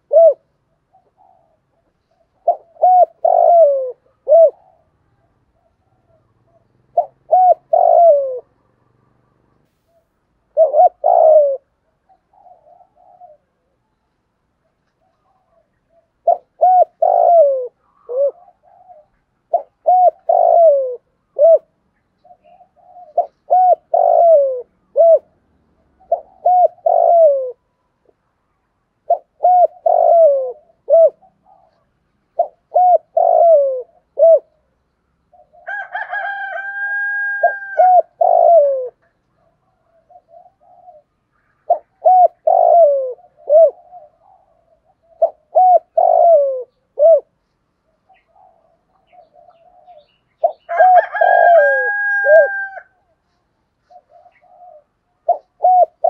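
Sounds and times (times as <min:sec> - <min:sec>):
dove cooing: 0:00.0 - 0:08.7, 0:09.8 - 0:28.2, 0:29.0 - 0:56.0.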